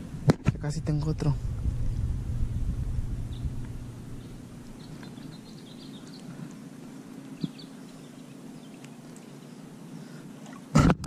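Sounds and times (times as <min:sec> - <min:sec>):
low steady hum: 0:00.0 - 0:11.0
faint bird chirps: 0:04.1 - 0:10.2.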